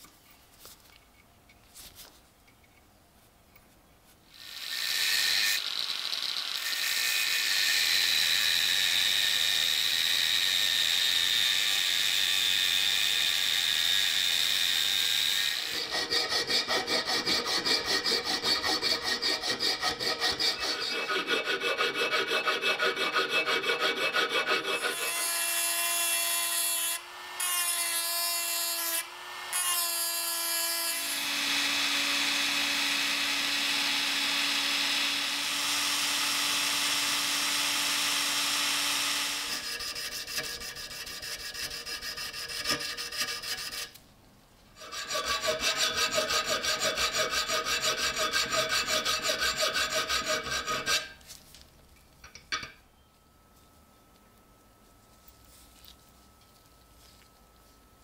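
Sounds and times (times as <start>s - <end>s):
small drill whining: 4.3s - 15.9s, 24.8s - 39.9s
hacksaw cutting steel: 4.3s - 44.0s, 44.8s - 51.2s
hand file rasping on steel: 15.6s - 25.3s, 39.5s - 44.0s, 44.8s - 51.2s.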